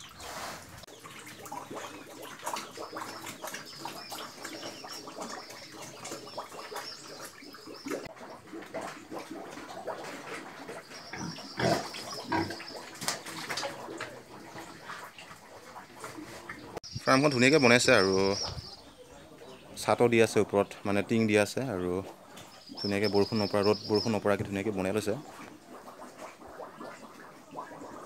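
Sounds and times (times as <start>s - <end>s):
pigs crunching and chewing grain: 0.0s - 16.8s
pigs grunting: 8.1s - 16.8s.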